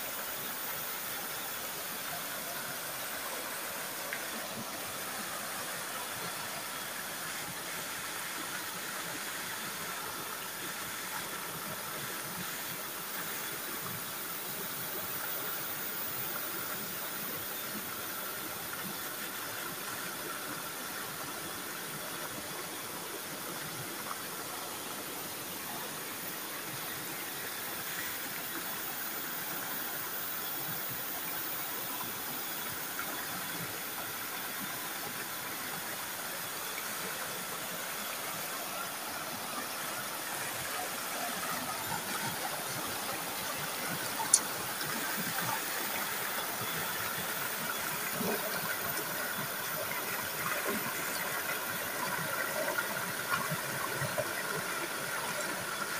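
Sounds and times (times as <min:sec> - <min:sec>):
stream rushing over boulders: 0:00.0 - 0:55.9.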